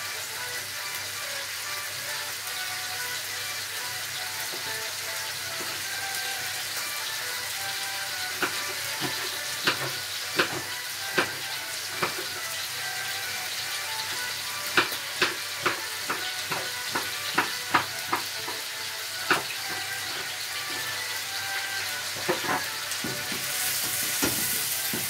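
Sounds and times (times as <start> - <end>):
meat sizzling in a frying pan: 0.0 - 25.0
knife tapping on chopping board: 8.4 - 11.4, 12.0 - 12.3, 14.7 - 18.6, 19.3 - 19.5, 24.1 - 25.0.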